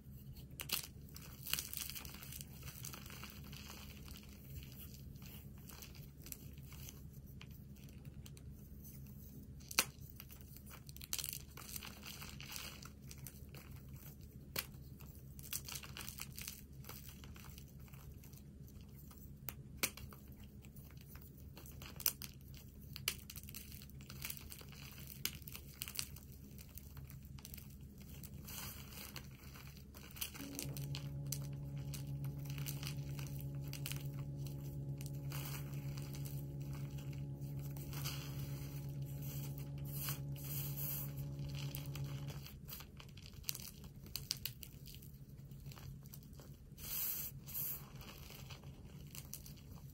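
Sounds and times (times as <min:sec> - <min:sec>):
chalk crumbling in plastic bag: 0:00.0 - 0:49.9
steady low hum: 0:29.8 - 0:43.2.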